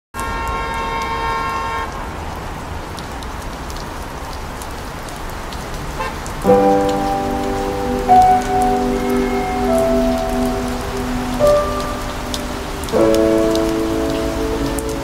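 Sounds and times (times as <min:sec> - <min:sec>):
rain falling: 0:00.2 - 0:15.0
music with sustained notes: 0:06.5 - 0:15.0.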